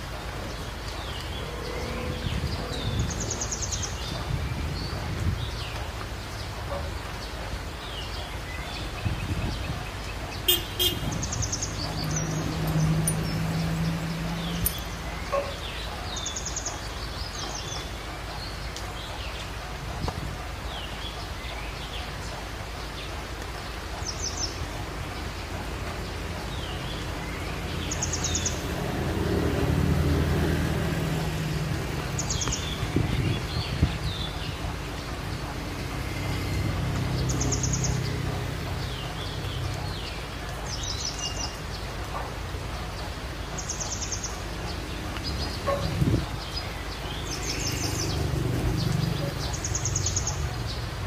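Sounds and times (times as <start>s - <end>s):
birds chirping: 0.0s - 51.0s
vehicle engine humming past: 0.1s - 4.3s, 10.4s - 16.7s, 24.8s - 51.0s.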